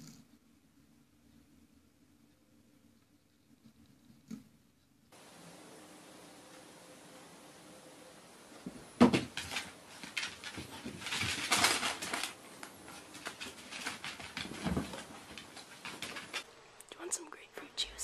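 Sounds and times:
fabric rustling: 0:08.6 - 0:16.5
pets scuffling and pattering: 0:08.6 - 0:16.5
thump: 0:08.7 - 0:09.3.

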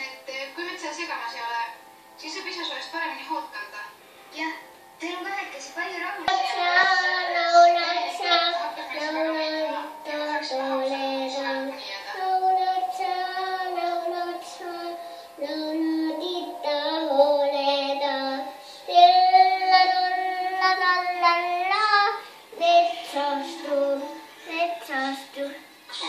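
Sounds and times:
toddler girl singing: 0:06.3 - 0:26.0.

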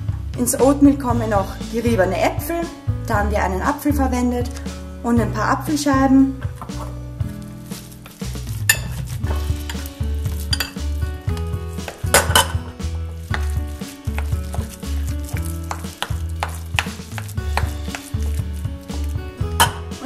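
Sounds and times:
background music with bass line: 0:00.0 - 0:20.0
stirring in a ceramic bowl: 0:07.6 - 0:19.8
spatula scraping a metal pot: 0:07.7 - 0:11.0, 0:11.7 - 0:19.9.

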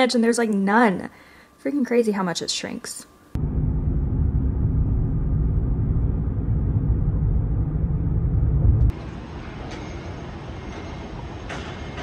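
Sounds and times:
car driving rumble: 0:03.4 - 0:08.9.

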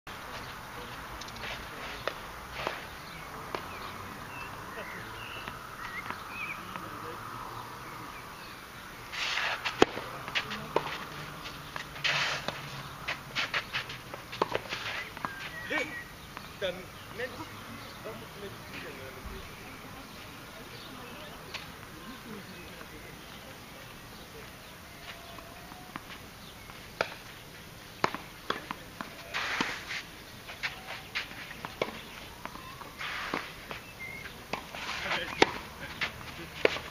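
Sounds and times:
shoe scuffing on clay court: 0:00.2 - 0:06.9, 0:09.0 - 0:36.9
tennis ball bouncing: 0:02.0 - 0:06.9, 0:09.5 - 0:15.6, 0:25.2 - 0:29.8, 0:30.6 - 0:36.9
tennis racket striking ball: 0:09.4 - 0:11.0.

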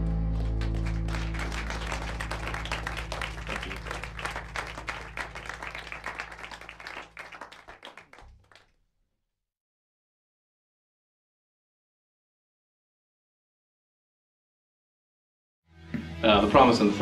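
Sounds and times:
applause: 0:00.0 - 0:08.7.

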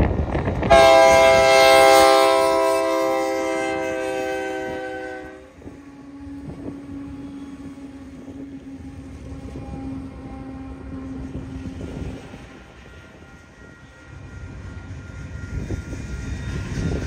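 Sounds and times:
train rumbling past: 0:00.0 - 0:17.0
locomotive horn chord: 0:00.7 - 0:11.2.

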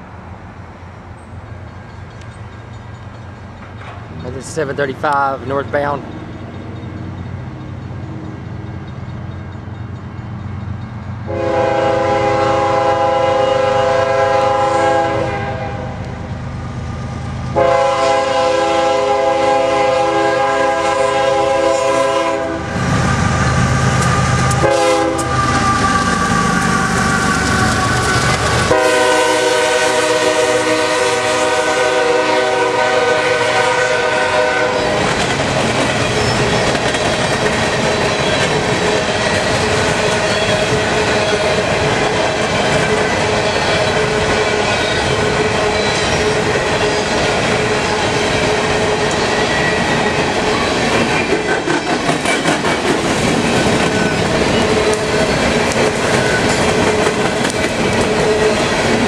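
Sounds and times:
train cars rattling over rail joints: 0:01.1 - 0:13.1, 0:17.0 - 0:59.0
locomotive air horn blasts: 0:11.3 - 0:16.0, 0:17.5 - 0:35.0.

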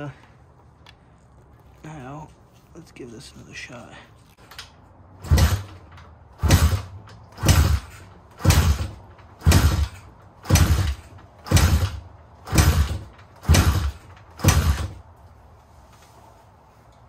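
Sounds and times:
motorcycle engine kicked over: 0:05.2 - 0:15.0.

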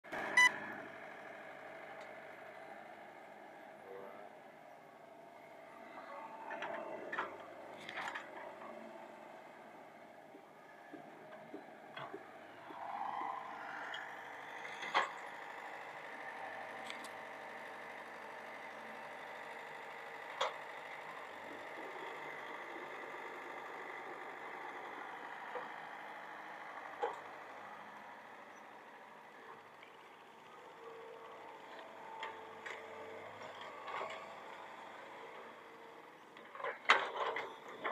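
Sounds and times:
excavator diesel engine running: 0:00.1 - 0:37.9.

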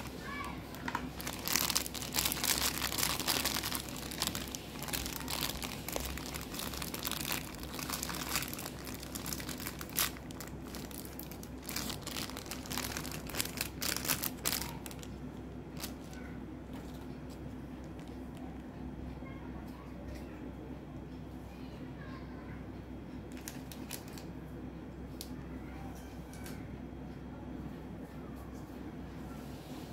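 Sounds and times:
plastic packet crinkling: 0:00.0 - 0:18.4, 0:23.3 - 0:24.3.

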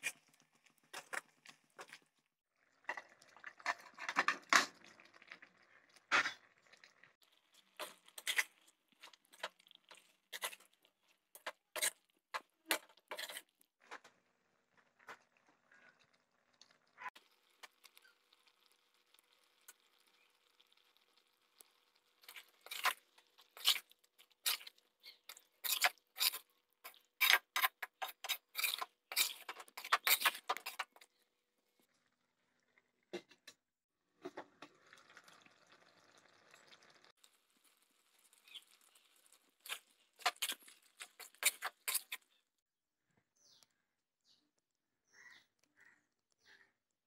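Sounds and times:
spoon scraping and knocking pan: 0:07.6 - 0:13.5, 0:22.2 - 0:31.1, 0:39.6 - 0:42.2.

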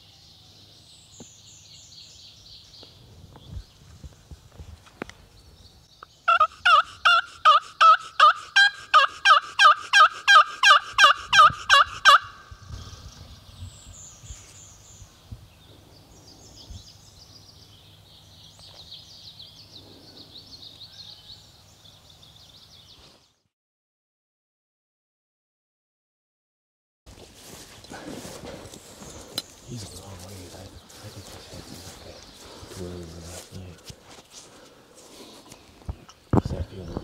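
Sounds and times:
small birds chirping: 0:05.1 - 0:08.2, 0:12.2 - 0:23.4, 0:28.6 - 0:37.0
wild turkey yelping: 0:06.3 - 0:12.5.

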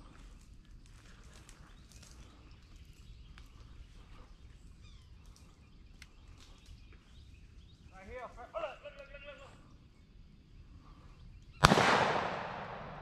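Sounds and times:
faint clicks and rustles: 0:00.0 - 0:07.8
faint bird chirps: 0:01.3 - 0:11.7.

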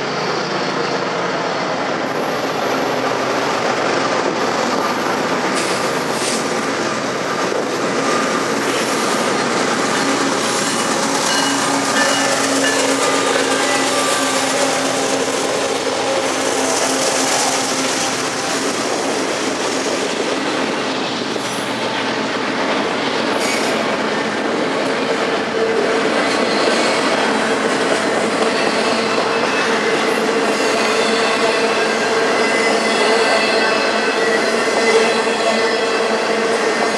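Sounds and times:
diesel locomotive engine hum: 0:00.0 - 0:36.9
freight train passing: 0:00.0 - 0:36.9
train wheel whine: 0:00.0 - 0:36.9.

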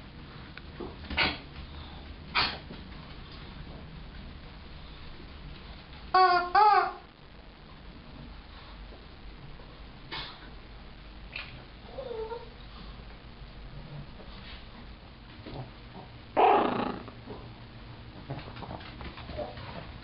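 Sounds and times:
dog whining: 0:11.8 - 0:12.6, 0:16.4 - 0:17.1.

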